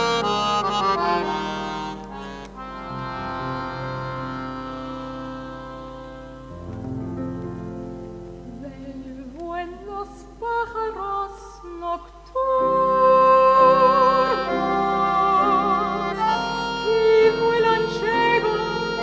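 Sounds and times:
accordion: 0:00.0 - 0:08.6, 0:12.7 - 0:19.0
piano: 0:00.0 - 0:19.0
woman singing with vibrato: 0:08.4 - 0:19.0.

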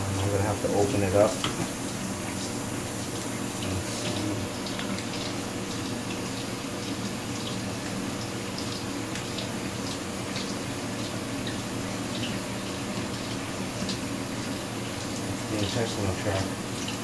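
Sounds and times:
low steady hum: 0:00.0 - 0:12.3
tap water running into sink: 0:00.0 - 0:17.0.

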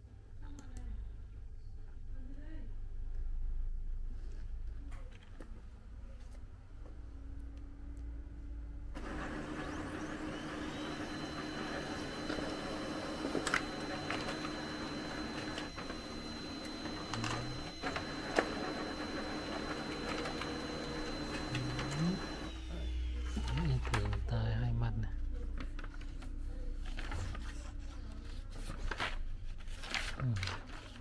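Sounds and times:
high steady whine: 0:09.0 - 0:23.6
printer motors running: 0:09.0 - 0:24.3.

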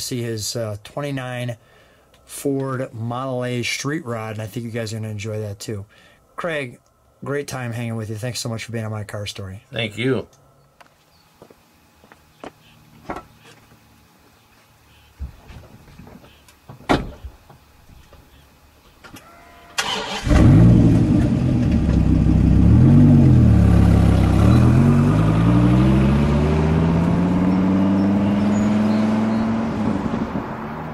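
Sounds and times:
car engine starting and revving: 0:19.8 - 0:30.9.

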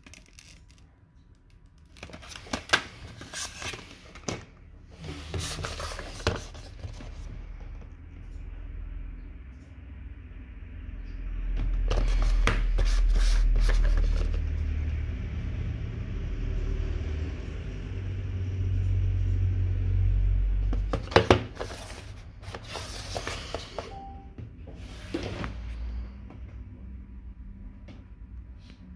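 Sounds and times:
cardboard box rustling: 0:05.0 - 0:07.3, 0:20.9 - 0:23.8.

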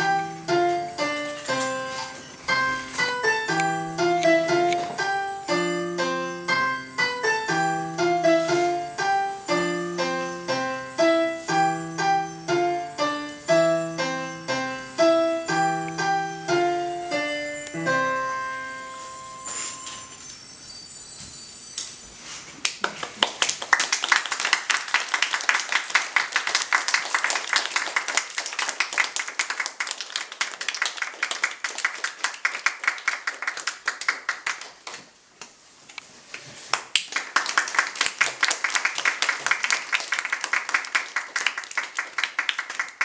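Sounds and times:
audience clapping: 0:22.6 - 0:35.2, 0:36.6 - 0:43.0.

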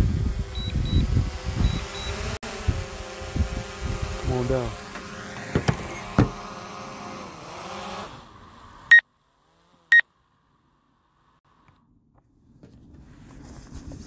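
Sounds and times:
drone propellers whining: 0:00.0 - 0:09.0
sharp knocks: 0:04.9 - 0:06.4.

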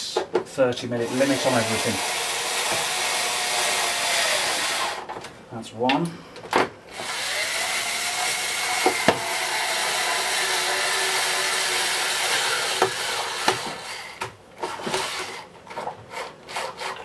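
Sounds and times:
screwdriver driving screw: 0:07.0 - 0:15.4.

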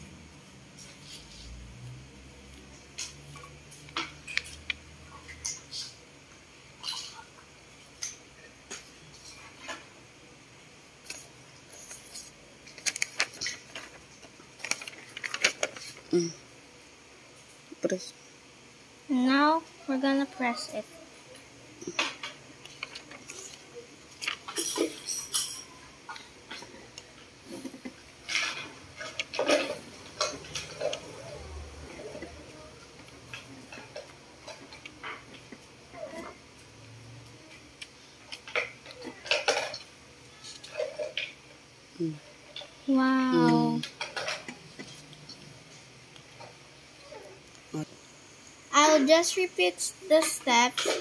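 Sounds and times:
paper rustling: 0:11.0 - 0:16.1.

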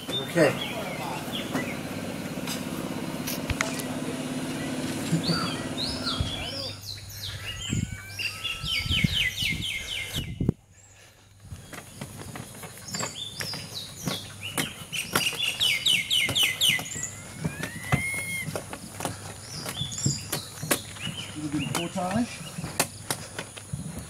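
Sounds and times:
songbird whistling: 0:04.6 - 0:10.5, 0:13.0 - 0:18.6
knocks and thumps of canoe: 0:11.6 - 0:24.0.

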